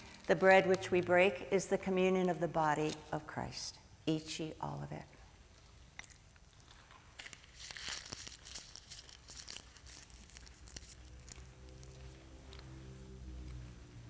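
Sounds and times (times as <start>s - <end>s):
wrapper crinkling and tearing: 0.0s - 1.0s, 6.0s - 12.7s.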